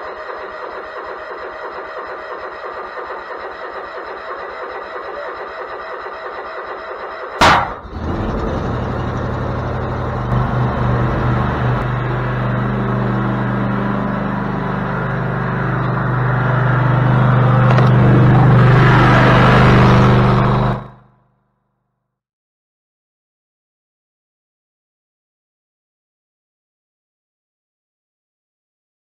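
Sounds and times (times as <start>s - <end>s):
mower engine starting and running: 0.0s - 21.1s
sharp bang: 7.4s - 8.3s.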